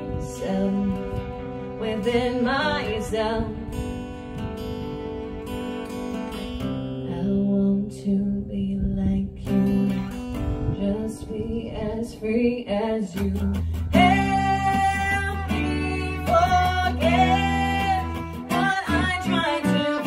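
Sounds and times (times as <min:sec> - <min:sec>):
violin melody: 0:00.0 - 0:07.0
acoustic guitar strumming: 0:00.0 - 0:07.9, 0:09.0 - 0:20.0.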